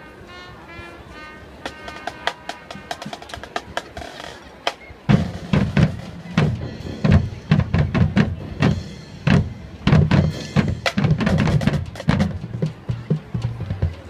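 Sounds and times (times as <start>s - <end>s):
marching band playing: 0.0s - 14.0s
sharp drum hits: 5.1s - 13.8s.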